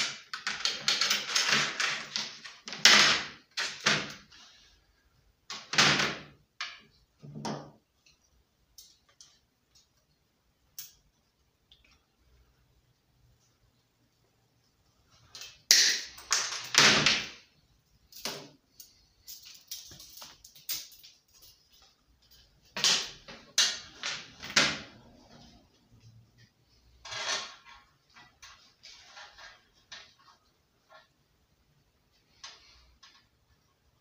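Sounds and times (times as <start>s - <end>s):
metal parts clattering on board: 0.0s - 4.4s.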